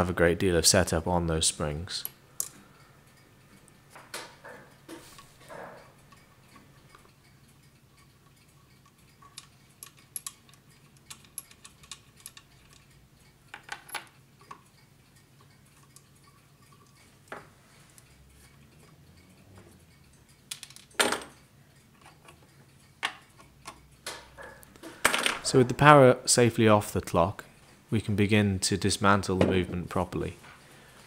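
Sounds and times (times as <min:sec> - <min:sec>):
small metallic clicks and taps: 0:02.0 - 0:25.1.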